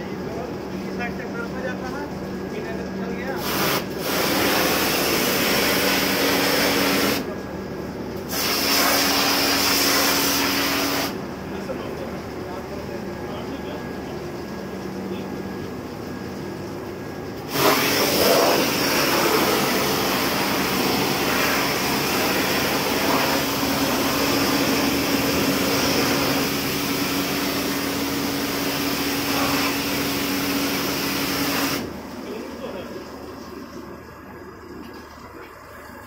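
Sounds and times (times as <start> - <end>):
steady hum: 0.0 - 36.0
pressure washer spraying metal: 3.4 - 7.3, 8.3 - 11.2, 17.5 - 31.9.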